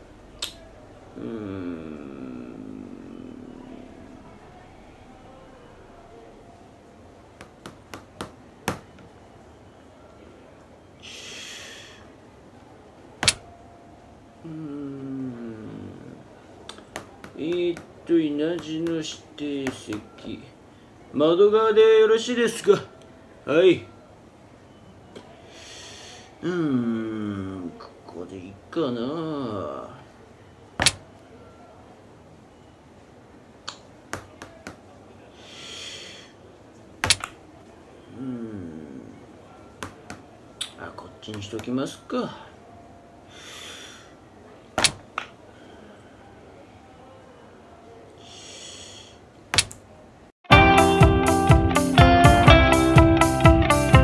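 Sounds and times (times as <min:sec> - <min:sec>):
low vocal hum falling: 0:00.0 - 0:06.6, 0:14.4 - 0:16.5, 0:38.1 - 0:39.5
soft breathy sound: 0:00.7 - 0:05.7, 0:11.0 - 0:12.7, 0:25.3 - 0:26.9, 0:35.2 - 0:36.6, 0:42.3 - 0:44.6, 0:45.4 - 0:47.0, 0:48.1 - 0:49.3.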